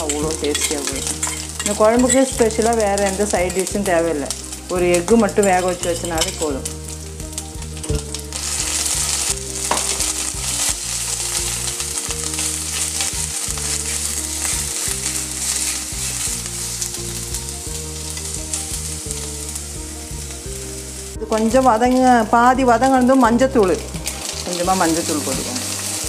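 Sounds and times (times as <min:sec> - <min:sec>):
spoon clicking and scraping pot: 0:00.0 - 0:03.7
ginger sizzling in hot oil: 0:00.0 - 0:26.0.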